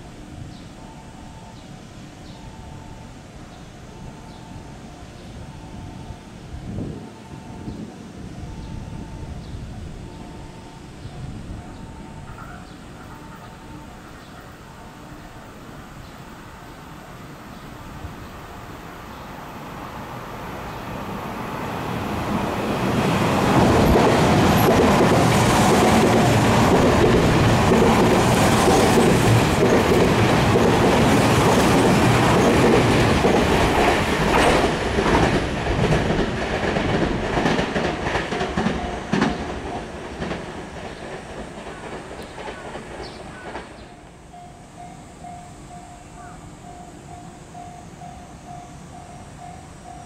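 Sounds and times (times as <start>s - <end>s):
train rumbling past: 0.0s - 50.0s
wheels clacking over rail joints: 22.2s - 44.1s.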